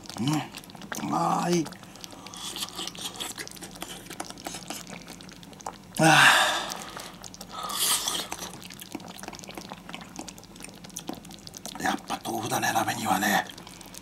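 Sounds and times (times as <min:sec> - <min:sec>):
faint chewing and mouth clicks: 0:00.0 - 0:06.0, 0:06.6 - 0:12.3.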